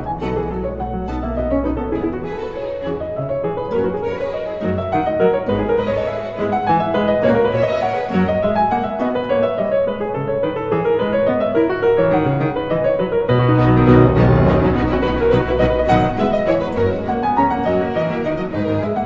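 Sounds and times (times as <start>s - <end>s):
solo piano piece: 0.0s - 19.0s
low sustained note: 13.3s - 18.1s.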